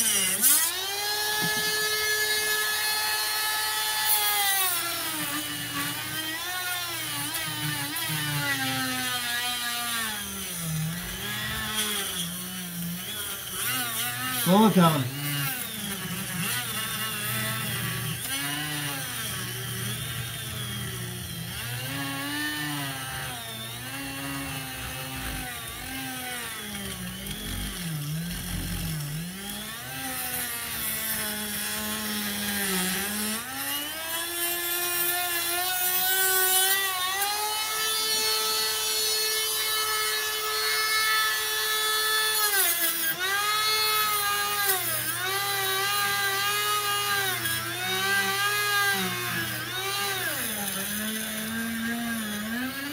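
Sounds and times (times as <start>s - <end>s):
rotary tool cutting whine: 0.0s - 52.9s.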